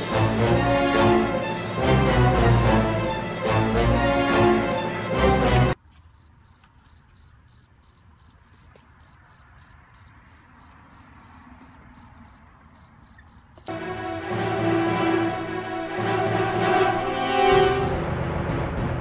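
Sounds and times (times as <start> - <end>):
background music: 0.0 - 5.8, 13.7 - 19.0
cricket chirping: 5.8 - 13.7.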